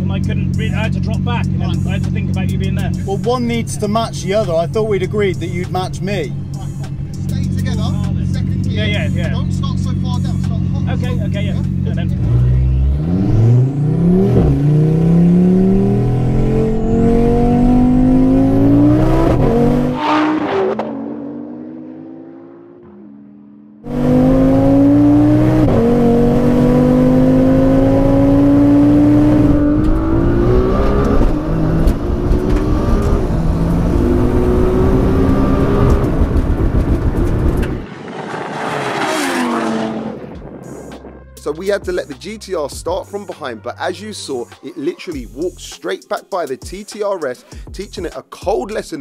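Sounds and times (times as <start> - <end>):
car engine accelerating hard: 0.0 - 41.2
car speeding past: 12.2 - 41.3.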